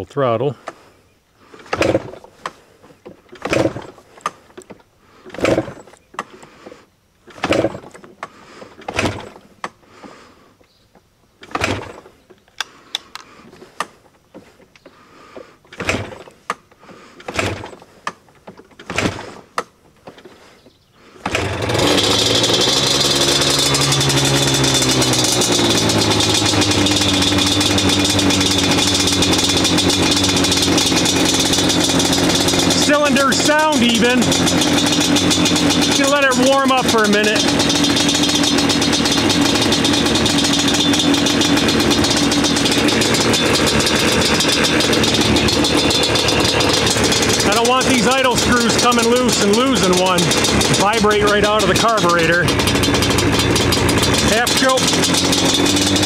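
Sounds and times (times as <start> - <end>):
two-stroke engine running: 1.5 - 2.3, 3.4 - 4.0, 5.1 - 6.7, 7.3 - 10.4, 11.4 - 12.1, 14.9 - 17.9, 21.0 - 56.0.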